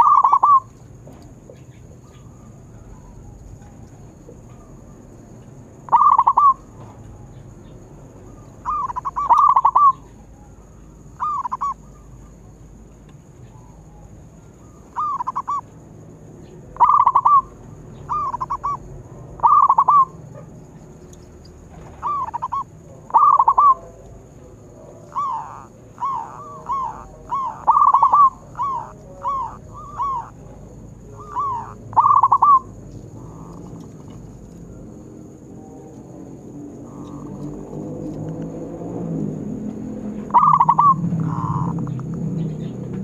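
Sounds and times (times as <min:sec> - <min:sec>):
dove cooing: 0:00.0 - 0:15.8, 0:16.5 - 0:43.0.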